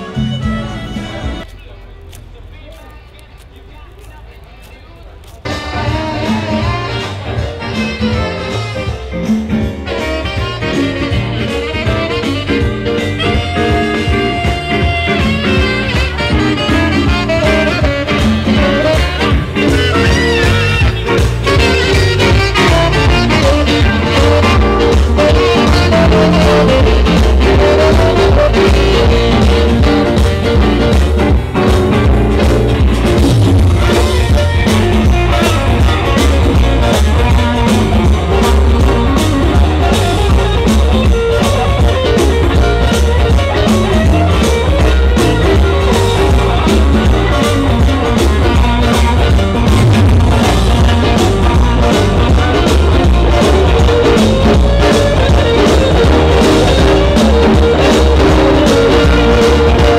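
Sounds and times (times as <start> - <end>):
music with steady beat: 5.2 - 59.9.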